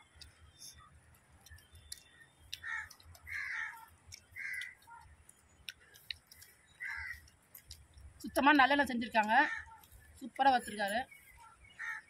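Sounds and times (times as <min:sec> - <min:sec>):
crow cawing: 0:02.6 - 0:04.8, 0:06.8 - 0:07.2, 0:09.4 - 0:09.8, 0:11.8 - 0:12.0.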